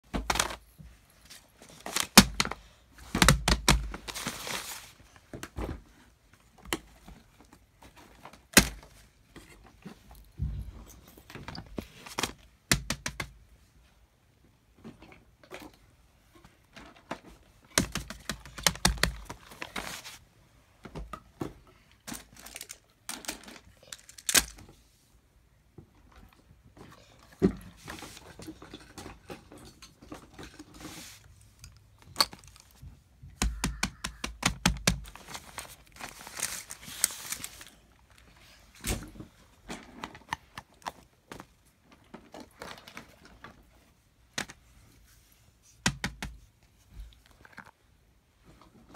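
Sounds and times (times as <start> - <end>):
paper rustling: 3.3 - 5.2, 17.8 - 20.2, 34.8 - 38.3
toys knocking and clicking: 32.1 - 35.0.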